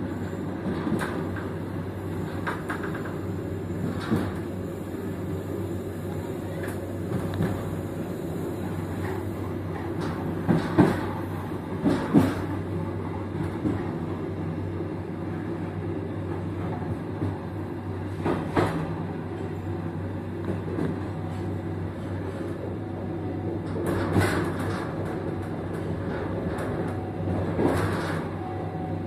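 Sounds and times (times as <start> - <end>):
train rumbling on rails: 0.0 - 29.0.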